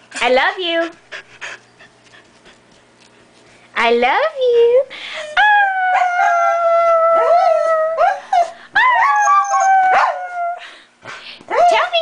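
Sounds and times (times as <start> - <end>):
dog howling: 5.4 - 10.6
dog yipping: 8.0 - 10.2.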